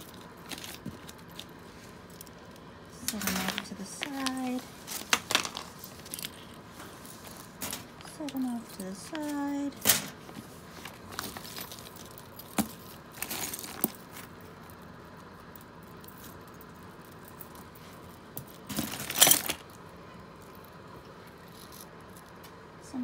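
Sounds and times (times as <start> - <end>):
jewelry clinking and jangling: 0.0 - 10.2, 10.8 - 22.5.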